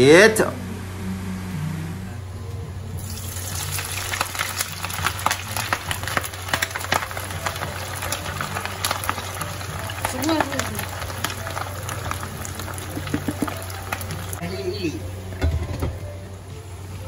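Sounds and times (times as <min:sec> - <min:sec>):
steady low hum: 0:00.0 - 0:03.4
rice boiling hard: 0:03.0 - 0:14.4.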